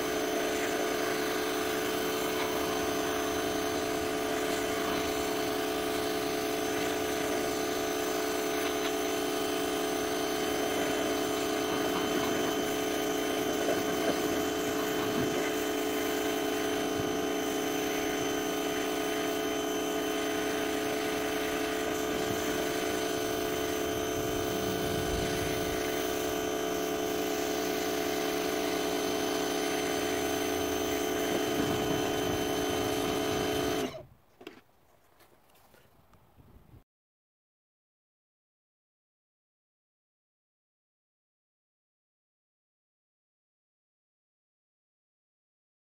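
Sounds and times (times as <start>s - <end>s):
pressure washer hum: 0.0s - 34.5s.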